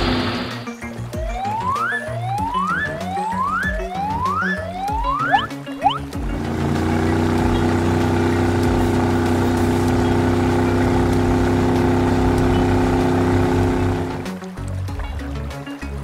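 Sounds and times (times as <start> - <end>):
truck engine drone under load: 5.3 - 14.3.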